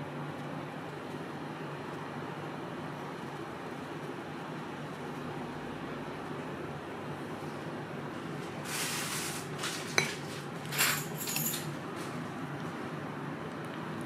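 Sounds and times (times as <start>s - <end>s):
dishes and cutlery clinking: 9.9s - 11.7s.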